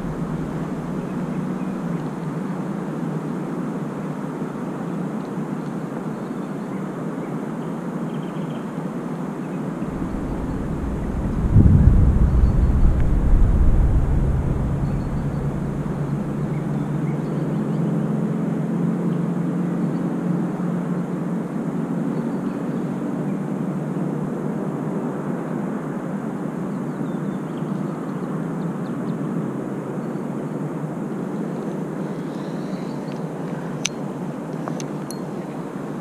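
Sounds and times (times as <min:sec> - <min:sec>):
distant engine drone: 0:00.0 - 0:02.7, 0:09.8 - 0:18.0
wind rumble on microphone: 0:00.0 - 0:02.8, 0:09.7 - 0:18.2.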